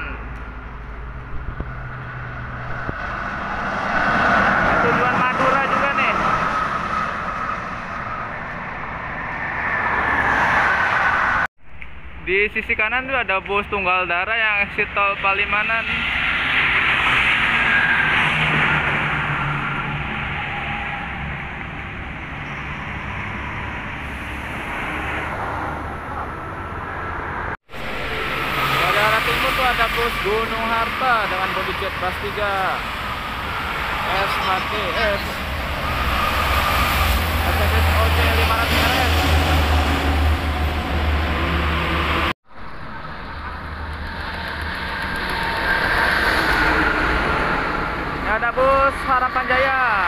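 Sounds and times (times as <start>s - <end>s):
highway traffic rumble: 0.0s - 50.0s
truck and cars approaching: 0.0s - 50.0s
coach diesel engine passing: 16.0s - 50.0s.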